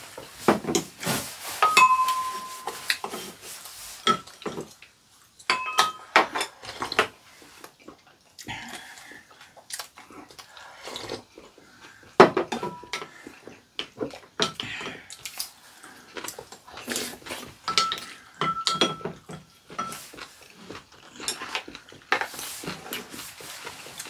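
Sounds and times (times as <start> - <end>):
spoons clinking ceramic bowls: 1.6 - 3.3, 5.4 - 6.5, 17.7 - 20.2.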